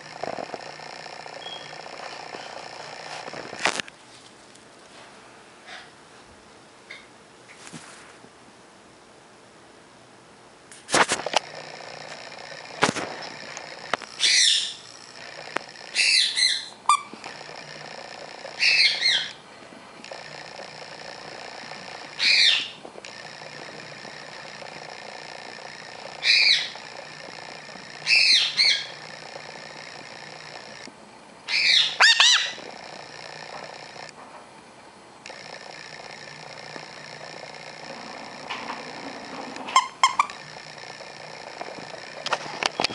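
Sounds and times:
parrot squawking: 0:14.2 - 0:14.8, 0:15.9 - 0:17.1, 0:18.6 - 0:19.4, 0:22.2 - 0:22.8, 0:26.2 - 0:26.8, 0:28.0 - 0:29.0, 0:31.5 - 0:32.6.

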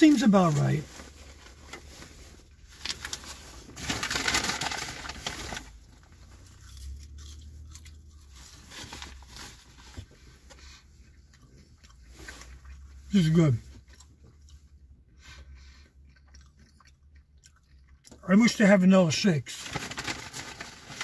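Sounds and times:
foil-lined paper bag crinkling: 0:00.0 - 0:07.0, 0:08.2 - 0:10.1, 0:19.2 - 0:21.0.

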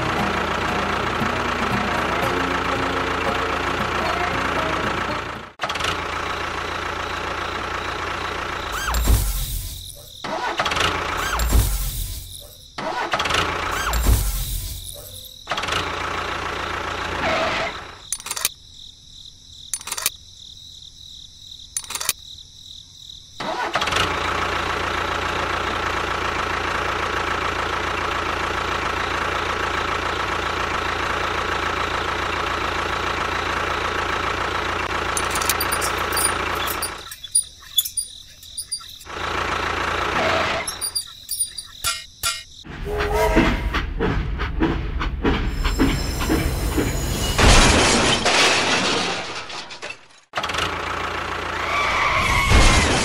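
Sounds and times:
engine running: 0:00.0 - 0:18.5, 0:23.4 - 0:42.6
sharp clicks: 0:18.1 - 0:18.6, 0:19.7 - 0:20.2, 0:21.8 - 0:22.2.

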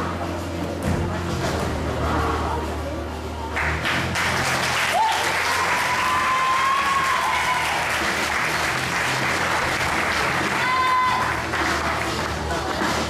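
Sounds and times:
audience applauding: 0:03.6 - 0:12.9
high cheer or whistle: 0:04.9 - 0:08.0, 0:10.5 - 0:11.4.

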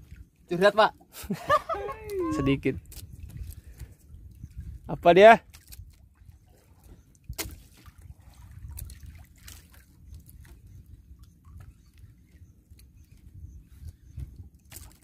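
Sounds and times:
water lapping against boat hull: 0:00.0 - 0:15.0
light knocks and splashes: 0:05.4 - 0:12.1, 0:14.2 - 0:15.0.

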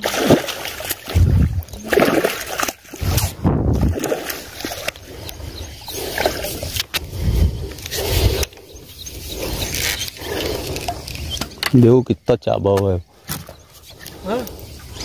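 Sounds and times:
water splashing and sloshing: 0:00.0 - 0:11.9.

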